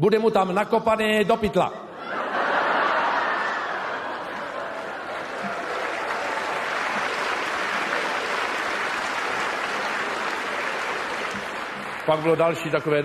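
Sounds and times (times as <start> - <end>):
audience laughing: 2.0 - 12.3
audience clapping: 3.0 - 13.0.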